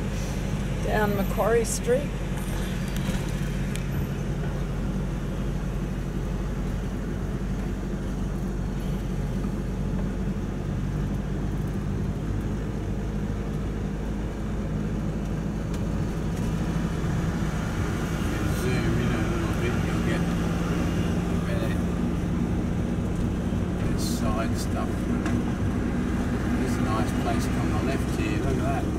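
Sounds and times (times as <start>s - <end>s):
vehicle engine and road drone: 0.0s - 28.9s.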